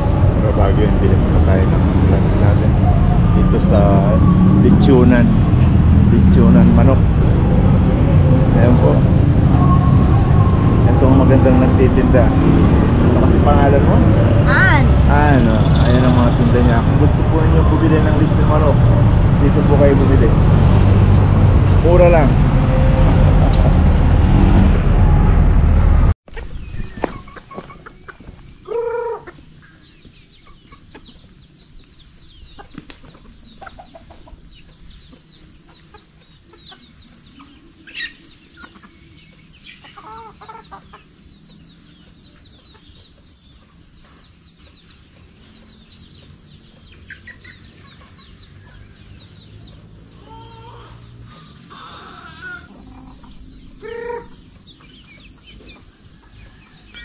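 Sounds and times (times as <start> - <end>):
loud street traffic: 0.0 - 29.6, 30.6 - 57.0
bird chirps: 14.3 - 18.8, 26.3 - 57.0
chickens calling: 26.3 - 57.0
high-pitched hiss: 28.0 - 57.0.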